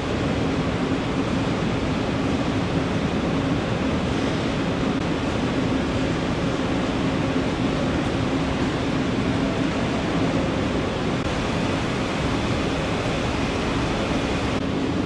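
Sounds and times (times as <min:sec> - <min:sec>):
constant low hum: 0:00.0 - 0:15.0
even rushing noise: 0:11.2 - 0:14.6.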